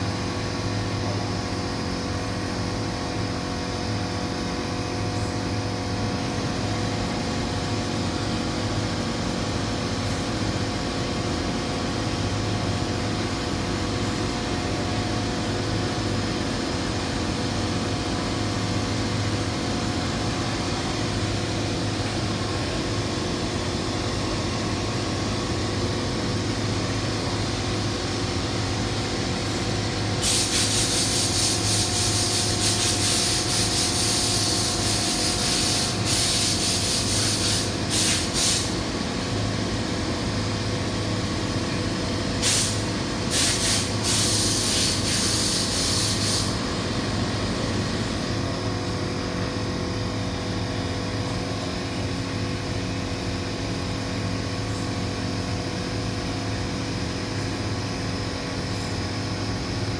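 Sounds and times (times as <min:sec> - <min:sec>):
ventilation machine hum: 0:00.0 - 0:59.9
paint spray gun hissing: 0:30.2 - 0:38.8, 0:42.4 - 0:46.6.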